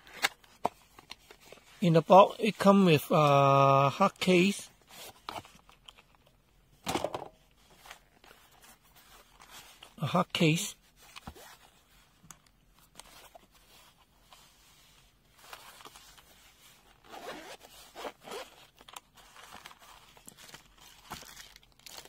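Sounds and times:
zipper being unzipped: 17.0s - 18.6s.

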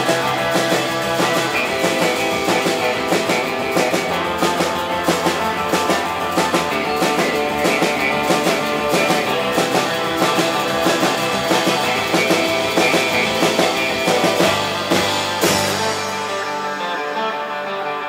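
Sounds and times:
drum kit beat: 0.0s - 17.3s
electric guitar melody: 0.0s - 18.0s
cymbal crash: 9.6s - 17.3s.

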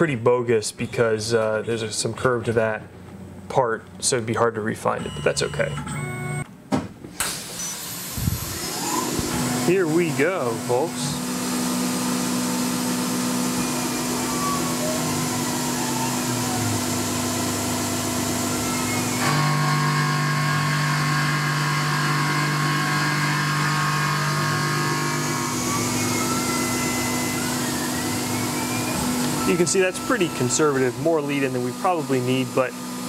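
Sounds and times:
mill spindle running: 7.3s - 33.0s
axis drives whining: 7.4s - 33.0s.

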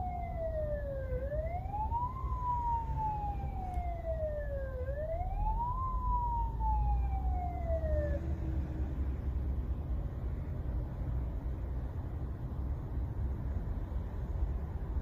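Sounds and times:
ambulance siren wailing: 0.0s - 8.6s
road and engine rumble: 0.0s - 15.0s.

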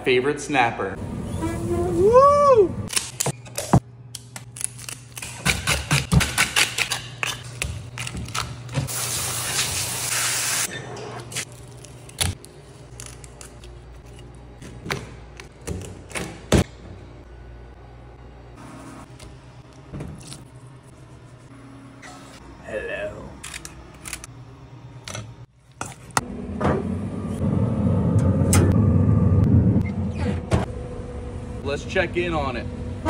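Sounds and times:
steady low hum: 11.3s - 33.0s.

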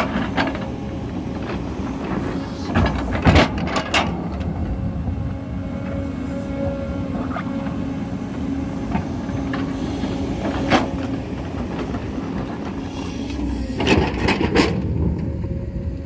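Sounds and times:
excavator diesel engine: 0.0s - 16.0s.

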